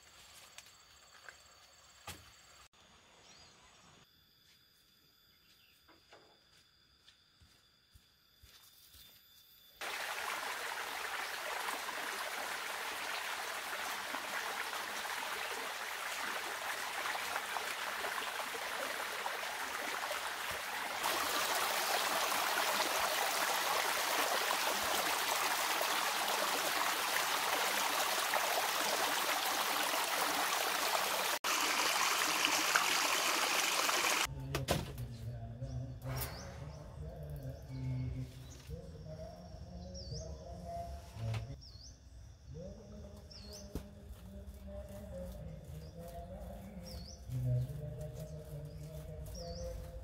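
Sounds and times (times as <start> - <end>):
stream trickling over stones: 9.8 - 34.3.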